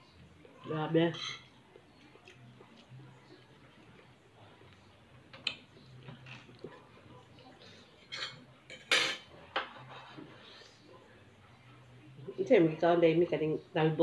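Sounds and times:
utensils clinking on plate: 1.0 - 1.6, 8.0 - 10.1.

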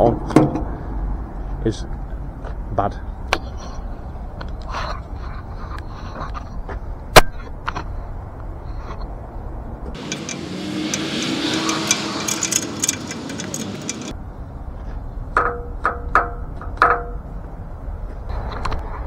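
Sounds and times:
metallic ratchet clicks: 10.0 - 14.2.

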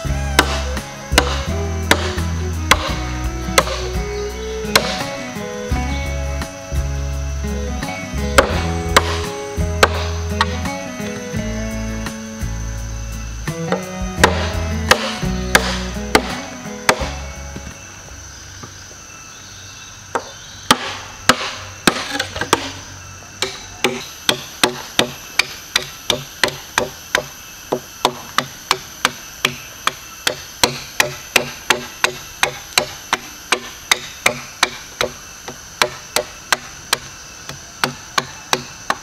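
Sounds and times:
high insect drone: 0.0 - 39.0
sharp wooden knocks: 0.3 - 3.9, 4.7 - 5.1, 8.4 - 10.6, 13.7 - 17.2, 20.1 - 22.8, 23.4 - 39.0.

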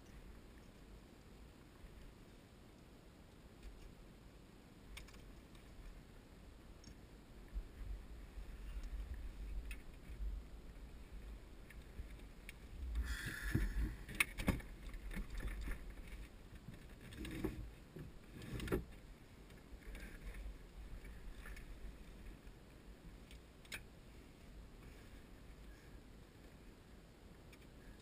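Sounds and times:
wind rumble on microphone: 5.3 - 23.1.

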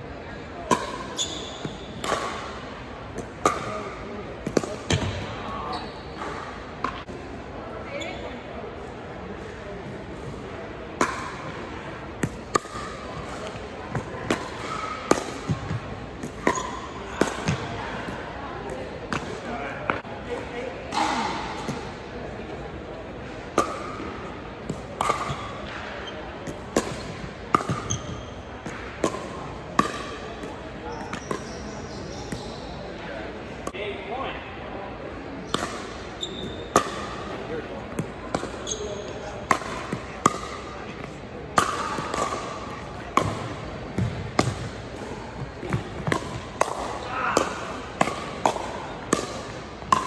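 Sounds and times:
ball bouncing: 12.2 - 17.7, 24.7 - 31.6, 39.4 - 44.8, 45.6 - 50.0
paddles hitting plastic ball: 39.4 - 44.8, 45.6 - 50.0.

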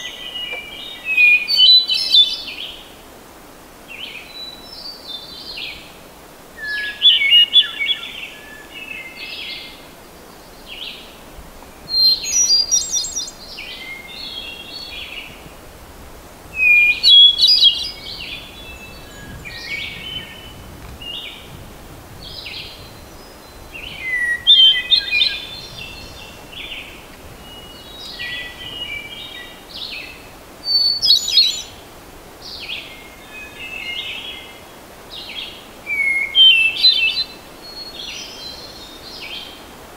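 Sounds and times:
faint bird song notes: 0.0 - 3.0, 3.9 - 15.7, 16.6 - 39.9.

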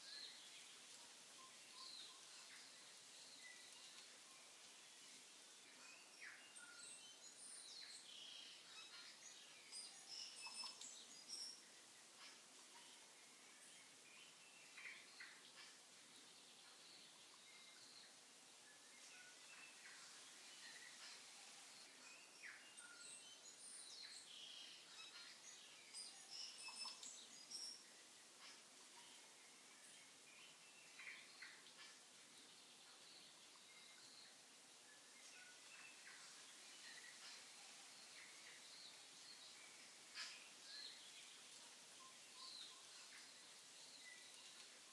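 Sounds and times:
faint bird chirps: 0.0 - 44.9
steady hiss: 0.0 - 44.9.

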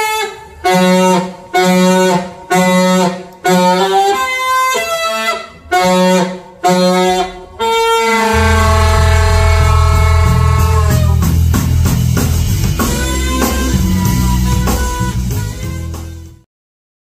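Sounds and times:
alto saxophone playing held notes: 0.0 - 11.6, 12.7 - 16.4
full band playing: 8.2 - 16.4
low bass notes: 8.2 - 16.4.

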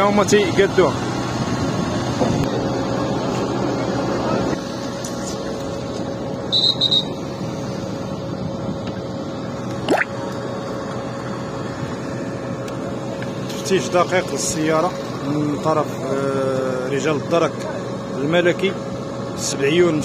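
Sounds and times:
vehicle engines idling: 0.0 - 20.0
quick rising whistle: 6.5 - 7.2.

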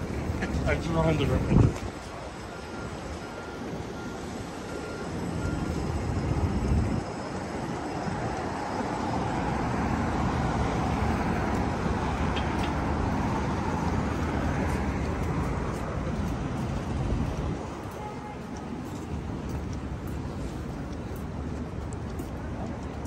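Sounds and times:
street traffic: 0.0 - 23.0.

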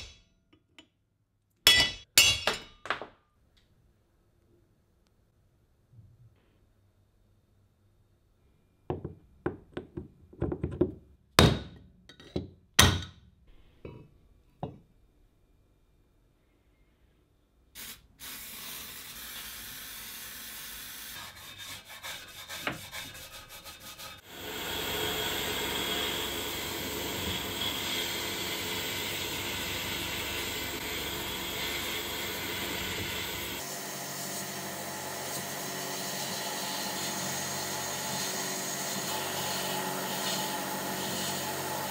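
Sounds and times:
sandblasting gun hissing: 17.8 - 21.1, 24.2 - 33.7
stiff brush scrubbing metal: 21.2 - 33.6.

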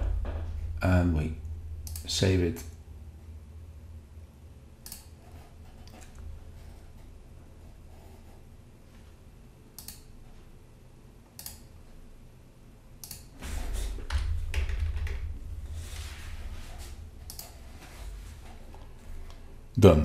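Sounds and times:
dull thuds: 0.0 - 0.8
computer mouse clicks: 1.8 - 2.1, 4.8 - 6.3, 9.8 - 10.2, 11.3 - 11.7, 13.0 - 13.3, 17.2 - 17.7
keystrokes on computer keyboard: 9.8 - 10.1, 17.2 - 17.7.

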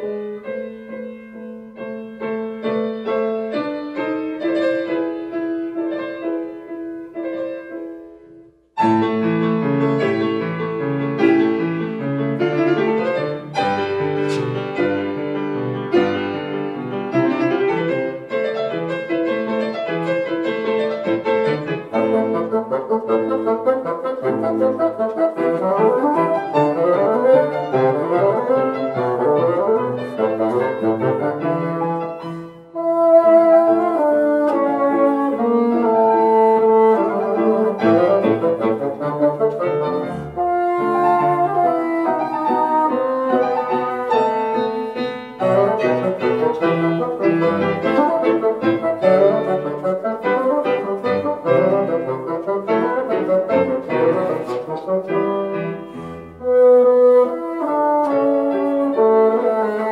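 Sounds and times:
piano chords: 0.0 - 59.9
bassoon: 19.4 - 59.9.

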